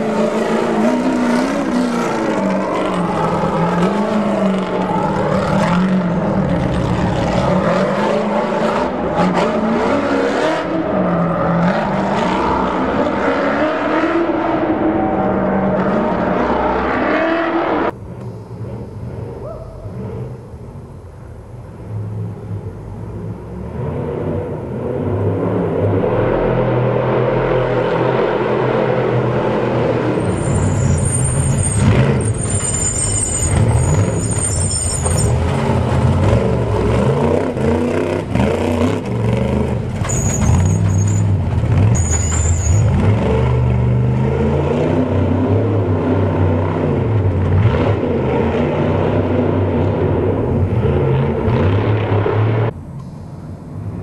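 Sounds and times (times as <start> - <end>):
race truck engines revving: 0.0 - 52.8
shrill high-pitched squeal: 30.2 - 35.4, 42.0 - 43.0.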